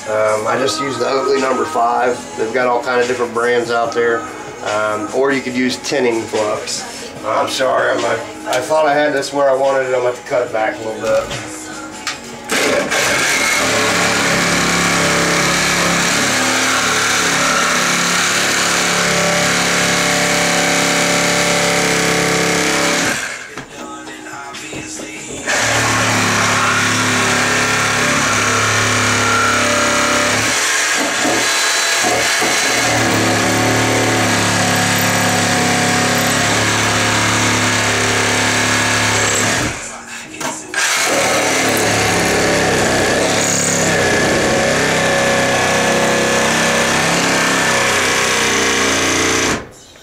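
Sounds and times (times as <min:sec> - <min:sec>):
reciprocating saw cutting wood: 0:12.6 - 0:23.5, 0:25.5 - 0:39.8, 0:40.8 - 0:49.5.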